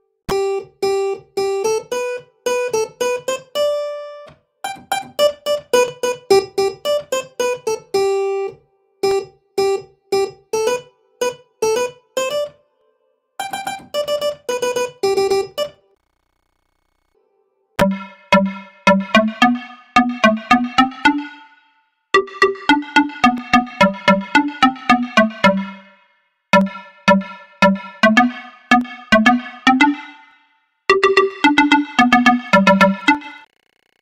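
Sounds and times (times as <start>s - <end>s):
mobile phone ringtone melody: 22.2s - 25.9s, 26.6s - 33.5s.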